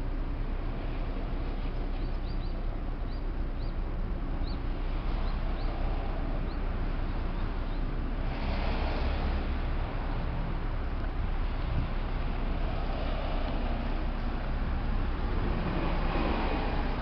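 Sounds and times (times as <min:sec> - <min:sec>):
low outdoor rumble: 0:00.0 - 0:17.0
high bird chirps: 0:02.0 - 0:03.8.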